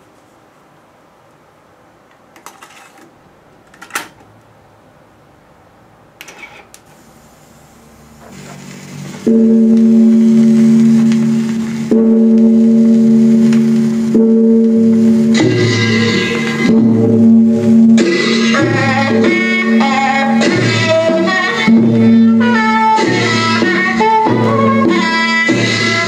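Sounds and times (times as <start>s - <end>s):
tape hiss: 6.8s - 26.0s
music playing from tape: 8.2s - 26.0s.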